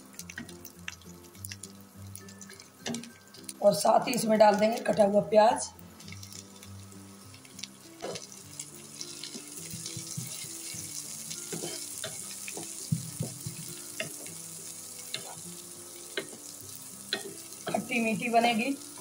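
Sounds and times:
onion sizzling in oil: 0:00.0 - 0:19.0
spatula scraping and tapping pan: 0:09.0 - 0:14.4.

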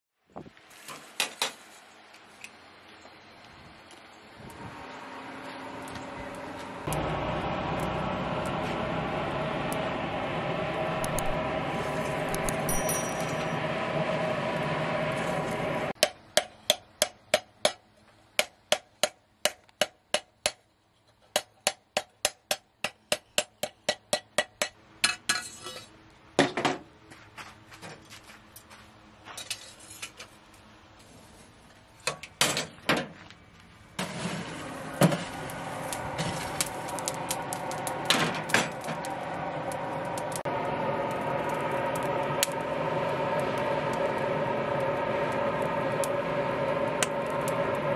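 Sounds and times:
forge fire rushing: 0:04.6 - 0:16.0, 0:34.0 - 0:47.9.

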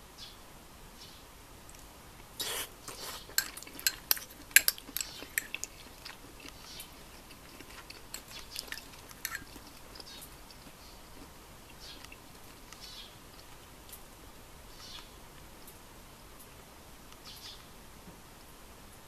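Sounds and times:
metal spoon scraping ceramic bowl: 0:02.9 - 0:06.1, 0:07.6 - 0:10.2.

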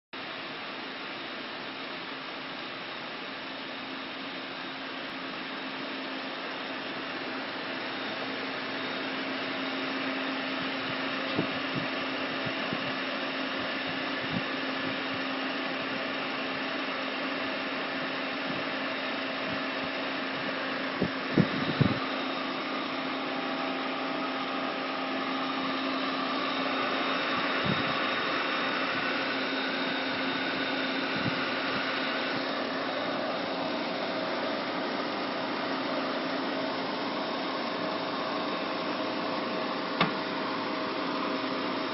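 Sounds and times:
grinder machine humming: 0:03.2 - 0:41.9.

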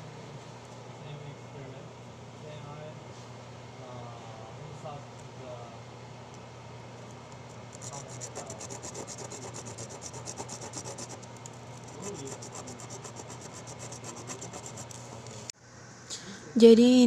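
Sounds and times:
steady low hum: 0:00.0 - 0:17.0
ceramic rasping on abrasive paper: 0:07.8 - 0:15.2.

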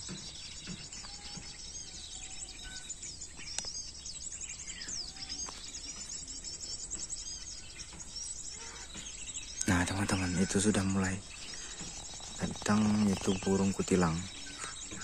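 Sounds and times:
bird calls from speaker: 0:07.4 - 0:15.0.

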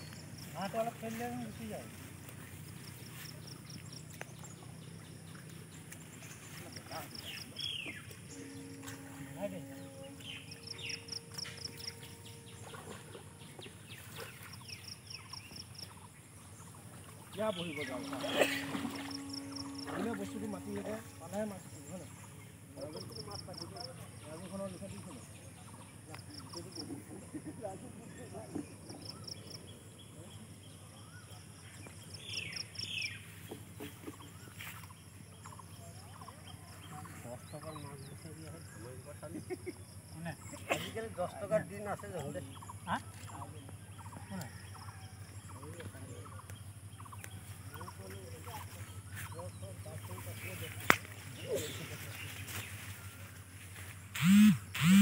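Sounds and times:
birds chirping: 0:00.0 - 0:55.0
downward-swooping bird calls: 0:01.5 - 0:26.9
high repeated bird notes: 0:07.3 - 0:13.9, 0:17.3 - 0:22.8, 0:54.2 - 0:55.0
rapid high bird chirps: 0:54.1 - 0:55.0.

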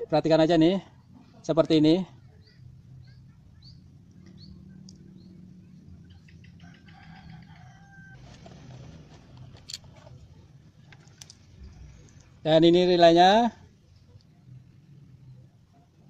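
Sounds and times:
small bird chirps: 0:02.2 - 0:07.4
rooster crowing faintly: 0:06.4 - 0:08.4.

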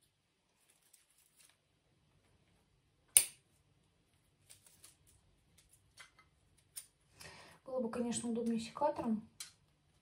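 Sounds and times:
faint clicks and rustles: 0:00.0 - 0:02.7.

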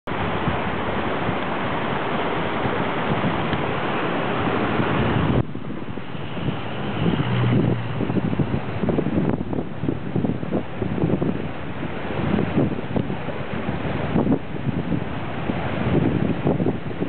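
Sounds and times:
floodwater rushing: 0:00.1 - 0:17.0
wind buffeting microphone: 0:00.1 - 0:17.0.

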